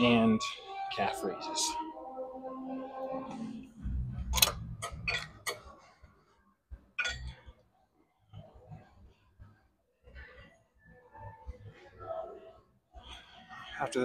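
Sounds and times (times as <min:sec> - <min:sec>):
gym equipment clicking and clinking: 0:04.4 - 0:05.7, 0:07.0 - 0:07.5.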